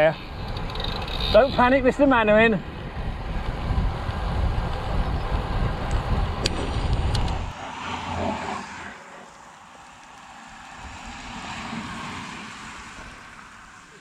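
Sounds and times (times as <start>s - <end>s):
wind buffeting microphone: 0.2s - 7.6s.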